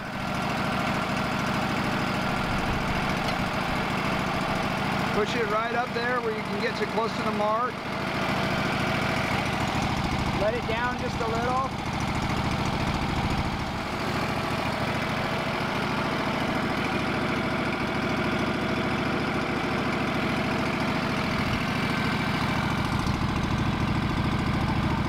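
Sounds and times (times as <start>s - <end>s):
sawmill engine running: 0.0s - 25.0s.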